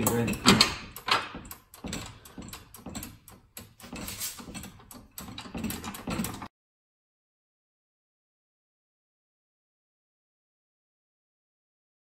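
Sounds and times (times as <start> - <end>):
floor jack clunking and rattling: 0.0 - 6.5.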